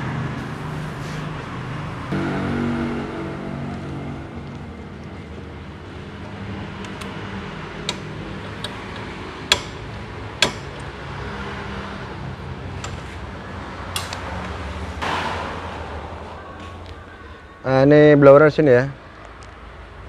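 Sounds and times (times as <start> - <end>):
steady low hum: 2.1 - 8.6.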